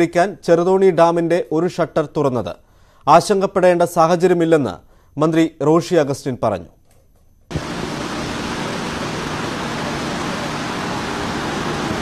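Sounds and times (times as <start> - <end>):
water rushing through spillway: 7.5 - 12.0.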